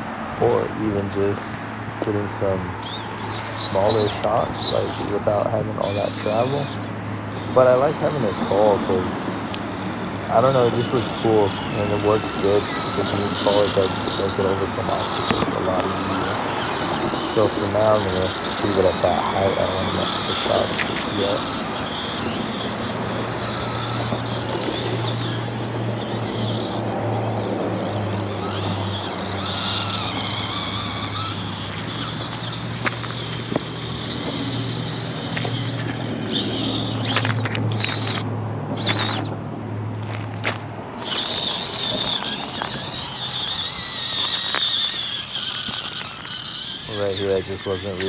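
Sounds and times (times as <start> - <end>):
small electric motor whining: 0.0 - 48.0
tyres clicking on rock: 28.3 - 39.3, 40.0 - 48.0.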